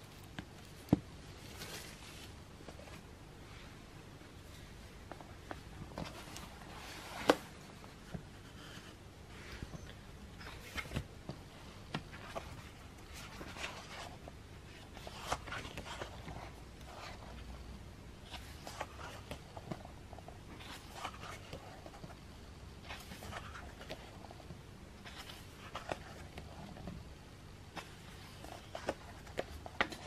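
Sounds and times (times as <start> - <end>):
pages turning: 0.3 - 3.0, 10.4 - 11.1, 11.9 - 17.4, 18.2 - 22.2, 22.8 - 24.2, 25.0 - 26.6, 27.7 - 30.0.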